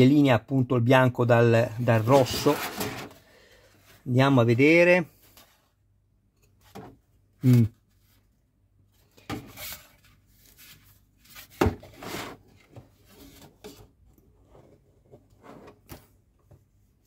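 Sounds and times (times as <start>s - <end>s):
model car parts rubbing and knocking: 1.9s - 3.2s.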